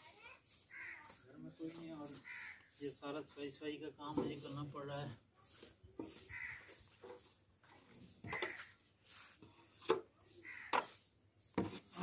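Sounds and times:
metal scraper scraping dirt: 0:04.1 - 0:12.0.

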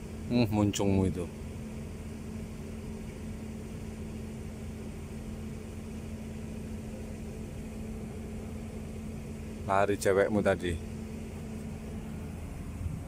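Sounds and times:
engine droning: 0:00.0 - 0:13.0.

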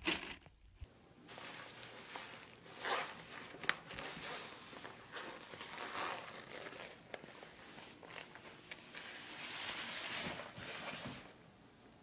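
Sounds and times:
fabric rustling on tile floor: 0:01.3 - 0:11.4.

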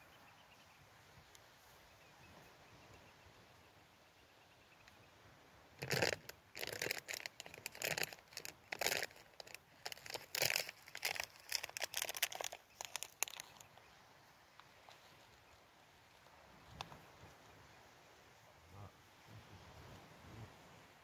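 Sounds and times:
rustling and crinkling: 0:05.8 - 0:13.8.

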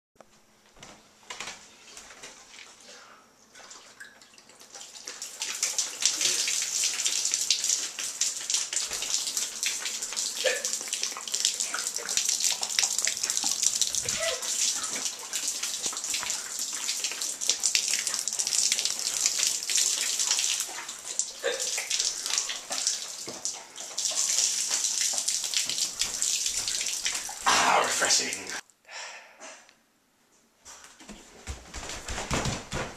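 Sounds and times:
liquid splashing on wooden floor: 0:03.8 - 0:27.6.

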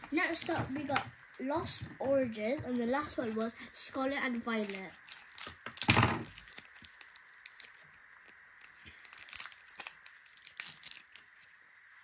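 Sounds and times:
foil wrapper crinkling: 0:00.1 - 0:01.5, 0:04.3 - 0:11.6
cards rustling: 0:04.3 - 0:11.6.

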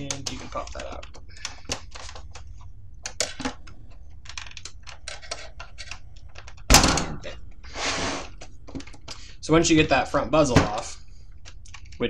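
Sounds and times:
plastic clicks and rattles: 0:00.0 - 0:06.7, 0:08.4 - 0:09.2, 0:11.4 - 0:12.0
loud thunk: 0:06.7 - 0:07.3
short scrape: 0:07.7 - 0:08.3.

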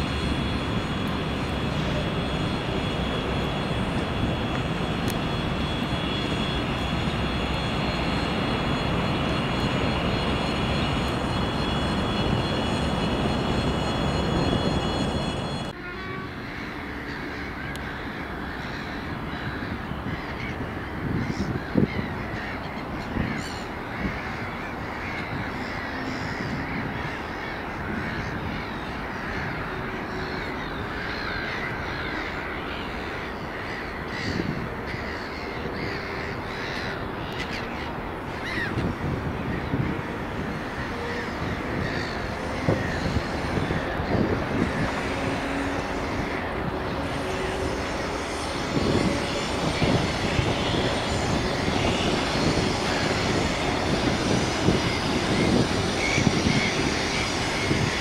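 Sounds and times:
diesel locomotive engine rumble: 0:00.0 - 0:58.0
crows cawing: 0:16.4 - 0:38.9, 0:40.7 - 0:51.2.

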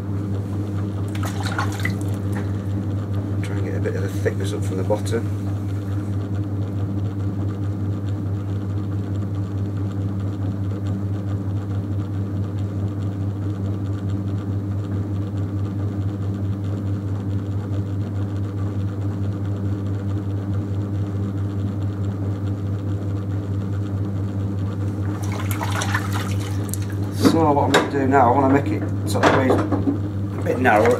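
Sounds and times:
potter's wheel humming: 0:00.0 - 0:30.9
wet hands sloshing on clay: 0:01.0 - 0:02.5, 0:24.9 - 0:27.2.

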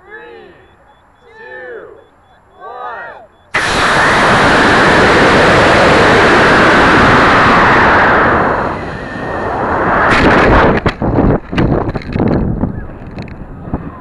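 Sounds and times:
rocket motor hissing: 0:03.6 - 0:10.8.

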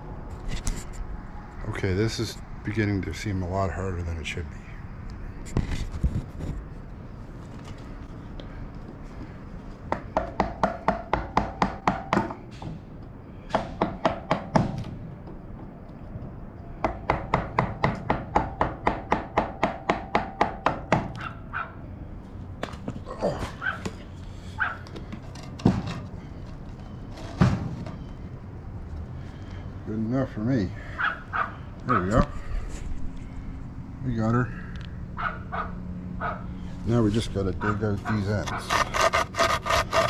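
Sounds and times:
mallet striking wood chisel: 0:09.9 - 0:12.4, 0:16.8 - 0:21.0.

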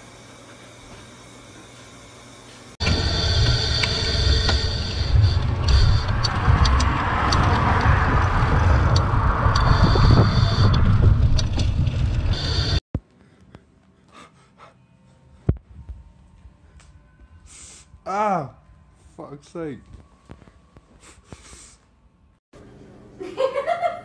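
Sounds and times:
road noise: 0:02.8 - 0:12.8
wind buffeting microphone: 0:04.8 - 0:12.4.

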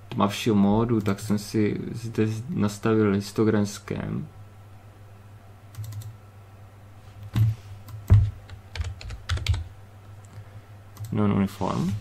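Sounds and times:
low electrical hum: 0:00.0 - 0:12.0
keyboard keys tapping: 0:07.4 - 0:09.7.

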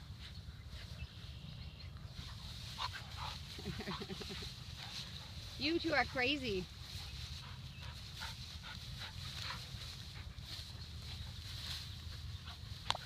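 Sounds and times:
rustle of grass: 0:00.0 - 0:13.0
steady low rumble: 0:00.0 - 0:13.0
dogs whimpering and grunting: 0:03.2 - 0:04.7.

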